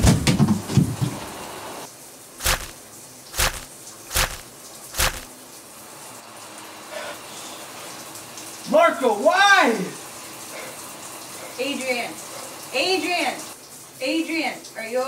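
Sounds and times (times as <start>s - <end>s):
sharp thuds: 2.4s - 2.8s, 3.4s - 5.3s.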